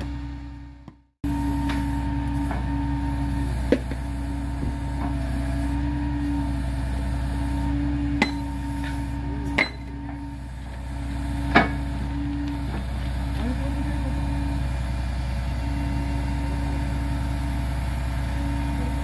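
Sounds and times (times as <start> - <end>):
truck engine running: 0.0 - 19.0
steel rail clanking: 8.1 - 13.8.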